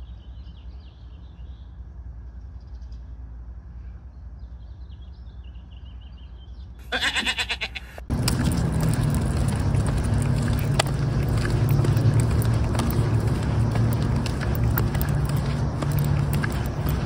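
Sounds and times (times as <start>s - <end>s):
footsteps on pavement: 8.1s - 17.0s.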